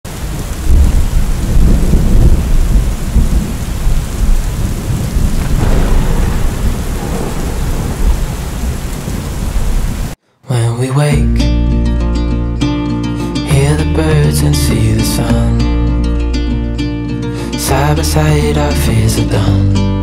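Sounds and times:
rain hissing: 0.1 - 10.2, 17.0 - 18.7
thunder rumbling: 0.1 - 10.2.

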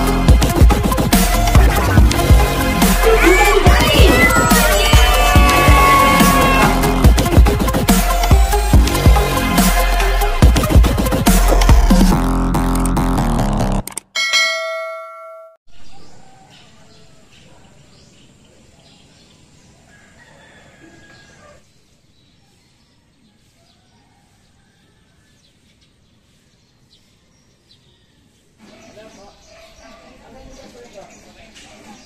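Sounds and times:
electronic intro music: 0.0 - 14.0
notification bell ding: 14.2 - 15.6
faint outdoor ambience: 15.7 - 32.0.

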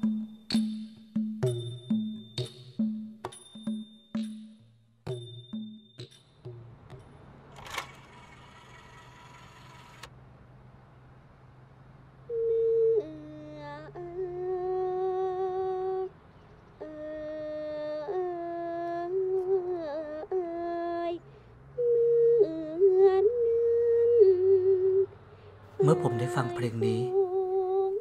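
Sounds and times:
woman singing unaccompanied: 12.3 - 25.2, 25.8 - 28.0.

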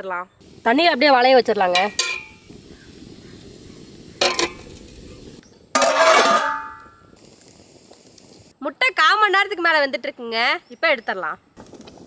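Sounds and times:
metal lid clanging on pot: 1.7 - 2.4, 4.2 - 4.8, 5.8 - 7.0
steel bowl knocking on metal: 1.7 - 2.4, 4.2 - 4.7.

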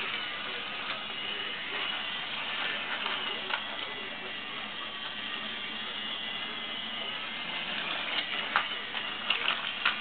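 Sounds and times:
toy train motor whirring: 0.0 - 10.0.

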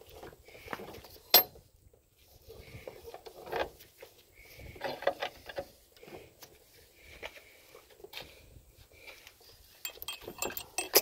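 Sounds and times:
metal clicking and scraping: 9.8 - 11.0.

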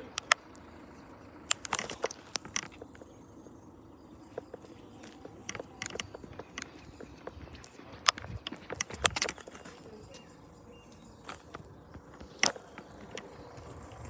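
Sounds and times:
footsteps crunching: 4.2 - 10.2.

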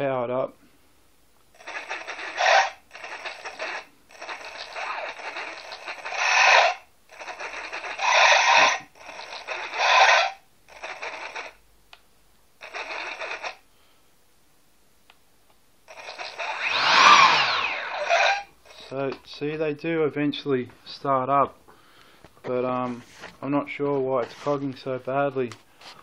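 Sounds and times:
electric fan motors stuttering: 1.6 - 11.6, 12.6 - 13.6, 15.9 - 19.0.

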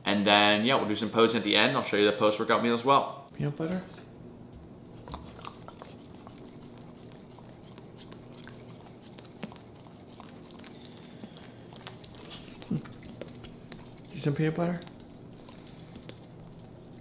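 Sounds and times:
dog licking: 4.8 - 17.0.

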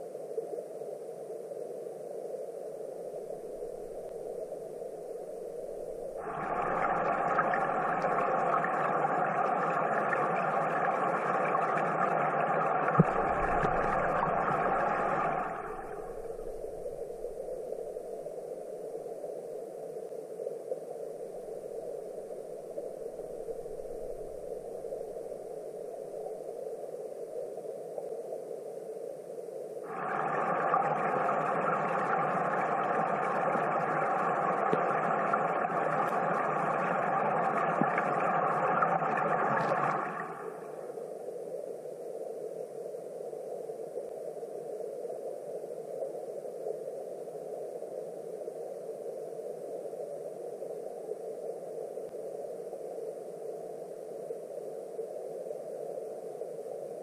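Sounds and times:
muffled underwater stream rushing: 0.1 - 28.9, 29.8 - 57.0
bright water rushing: 5.6 - 18.2, 29.9 - 40.9.

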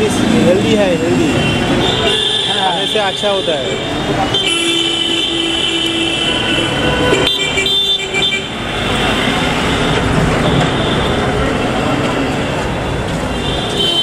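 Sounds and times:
passing traffic rumble: 0.0 - 14.0
vehicle horns: 0.8 - 14.0.

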